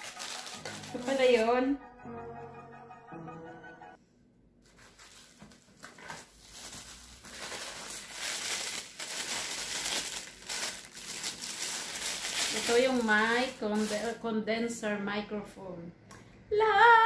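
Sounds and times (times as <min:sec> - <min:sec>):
plastic bag crinkling: 0:00.0 - 0:01.4, 0:04.6 - 0:14.2.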